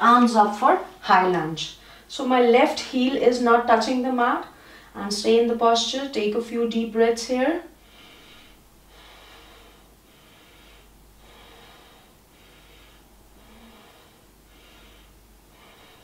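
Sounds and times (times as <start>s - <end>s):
person breathing deeply: 4.6s - 5.0s, 7.8s - 16.0s.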